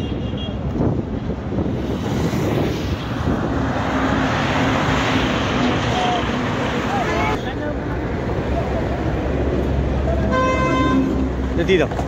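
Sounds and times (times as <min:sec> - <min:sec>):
highway traffic passing: 0:00.0 - 0:12.0
bus engine approaching: 0:02.5 - 0:12.0.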